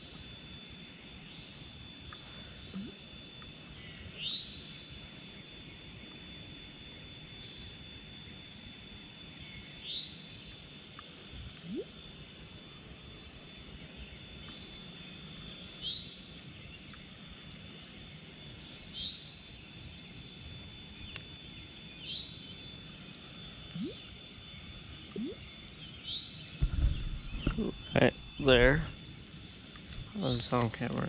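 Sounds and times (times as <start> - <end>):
faint steady high tone: 0.8 - 5.0, 11.6 - 12.8, 23.6 - 24.2, 25.0 - 25.8, 27.3 - 29.1
quick ticking calls: 23.7 - 24.0, 25.1 - 25.4.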